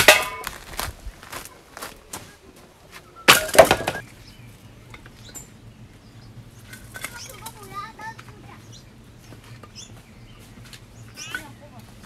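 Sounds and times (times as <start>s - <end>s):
firewood logs knocking together: 0.0s - 2.2s, 3.3s - 4.0s.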